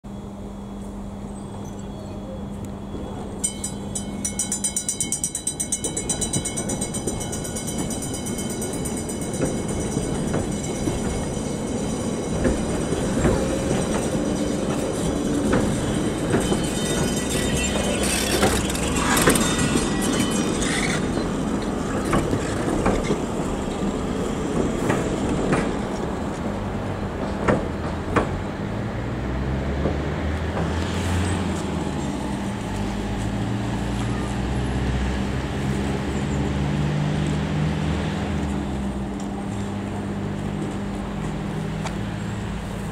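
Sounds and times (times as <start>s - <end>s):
tram rumbling on rails: 0.1s - 42.9s
tram bell ringing rapidly: 2.8s - 26.0s
wheels clattering clicks: 3.5s - 23.9s.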